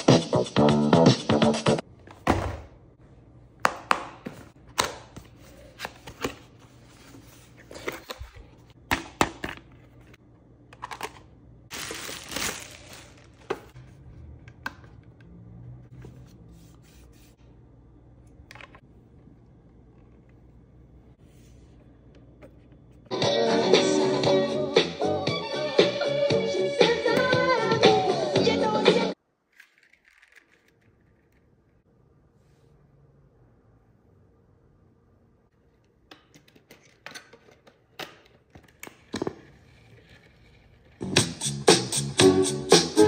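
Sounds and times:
packaging rustle: 11.7s - 13.8s.

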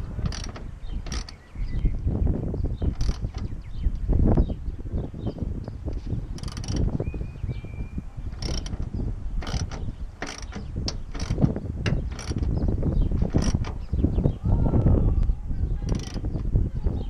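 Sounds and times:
ratchet wrench clicking: 0.2s - 1.5s, 2.9s - 3.5s, 6.4s - 6.9s, 8.3s - 13.8s, 15.9s - 16.4s.

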